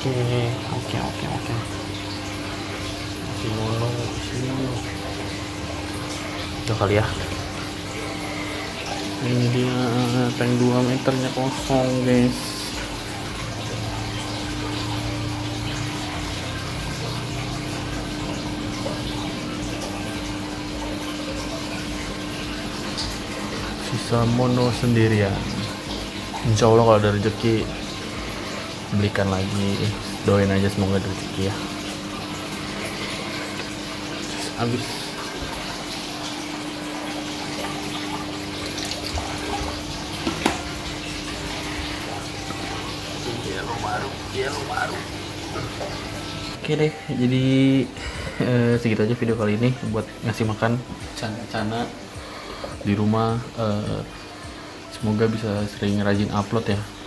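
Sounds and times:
aquarium pump humming: 0.0 - 57.0
circulating water: 0.0 - 57.0.

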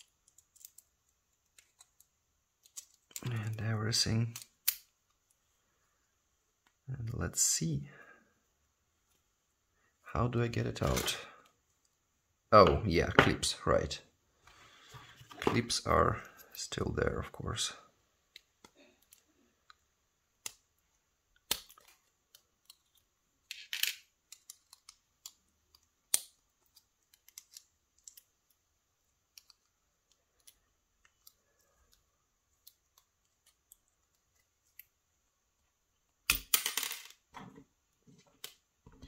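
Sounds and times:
small metal clicks and scrapes: 0.0 - 3.6, 21.5 - 28.6.

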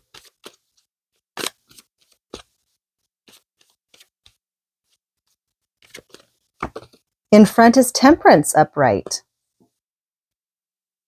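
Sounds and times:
cards shuffled by hand: 0.0 - 7.1.

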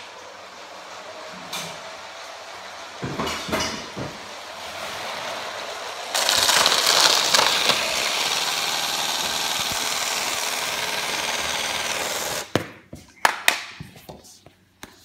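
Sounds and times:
toy train motor whirr and rattle: 4.2 - 12.5.

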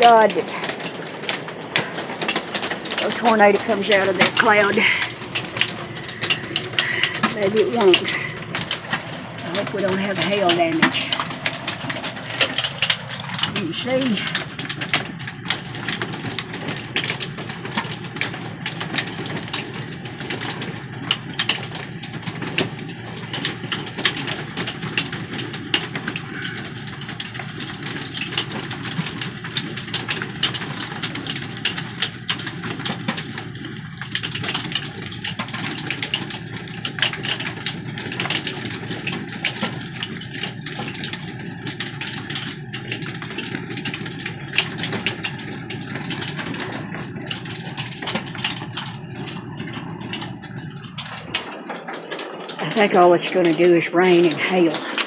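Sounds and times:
hailstones ticking on a roof: 0.0 - 55.0
rain on a roof: 0.0 - 55.0.

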